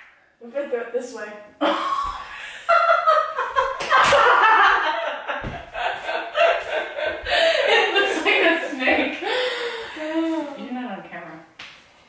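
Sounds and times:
people laughing loudly: 2.6s - 8.8s.

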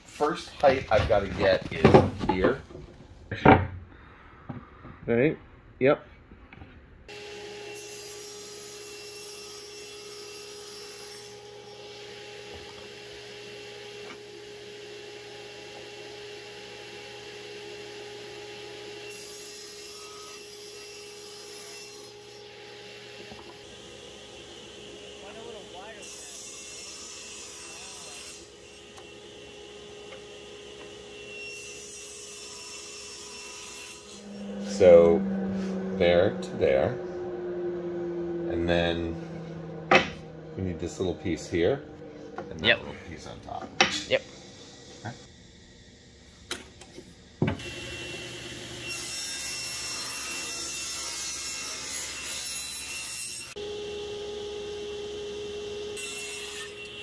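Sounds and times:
table saw cutting board: 7.1s - 45.2s, 46.6s - 57.0s
wood rubbing on metal: 33.1s - 45.3s
steady hum: 34.0s - 47.4s.

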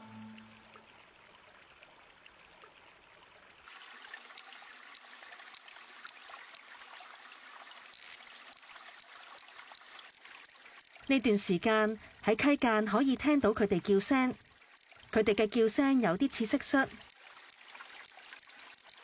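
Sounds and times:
toad high chirps: 7.8s - 8.3s, 9.0s - 19.0s.

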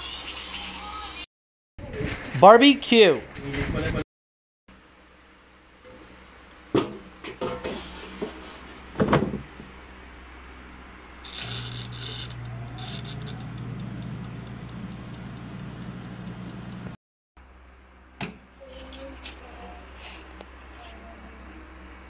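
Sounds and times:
air fryer fan humming: 5.9s - 18.5s
basket knocks and clatter: 9.0s - 9.5s
timer knob crackling rattle: 11.3s - 17.0s.

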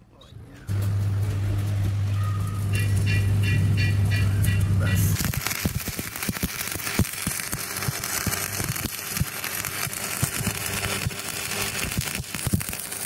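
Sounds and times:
welding arc crackling sizzle: 0.7s - 13.0s
sharp spatter pops: 5.1s - 13.0s.

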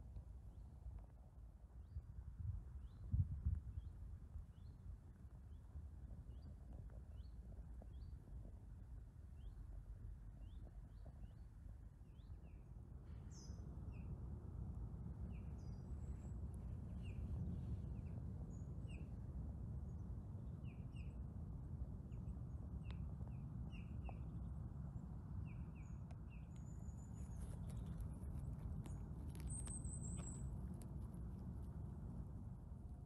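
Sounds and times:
low background rumble: 0.0s - 33.0s
birds chirping: 25.5s - 30.5s.

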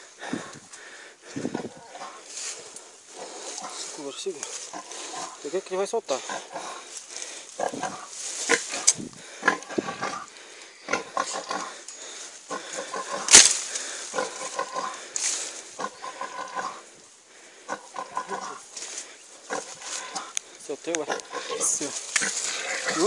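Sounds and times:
pig squealing and grunting: 7.6s - 11.8s, 14.1s - 15.0s, 15.8s - 16.9s, 17.7s - 18.7s, 21.0s - 23.0s.

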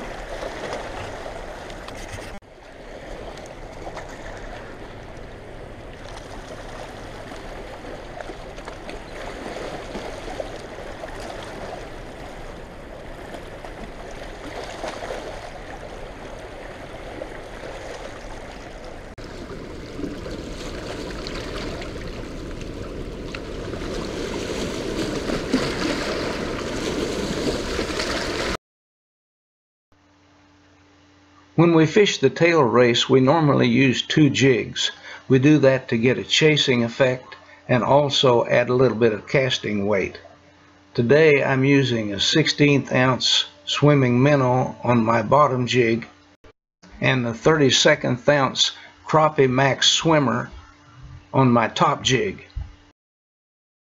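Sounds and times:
rushing churning water: 0.0s - 1.9s, 2.5s - 28.6s.

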